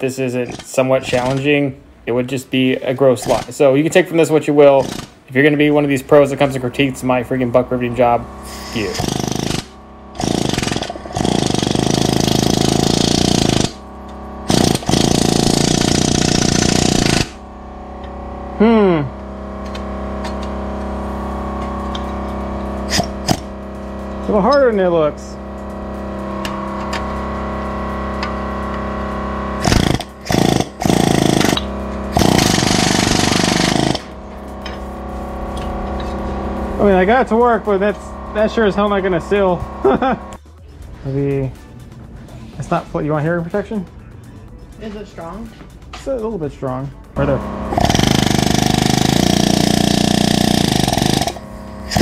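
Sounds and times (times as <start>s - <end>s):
pneumatic rivet gun hammering: 4.8s - 5.2s, 9.0s - 13.8s, 14.5s - 17.4s, 22.9s - 23.5s, 29.6s - 34.8s, 47.7s - 52.0s.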